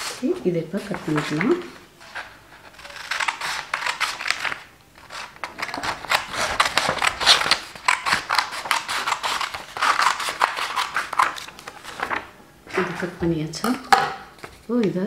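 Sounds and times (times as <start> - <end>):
scissors snipping paper: 2.6 - 12.2.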